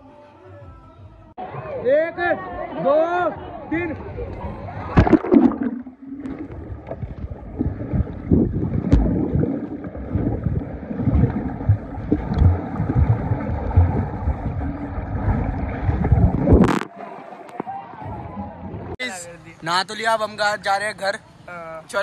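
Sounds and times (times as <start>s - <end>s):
muffled underwater bubbling: 4.8s - 17.0s
low thumps in water: 4.9s - 16.9s.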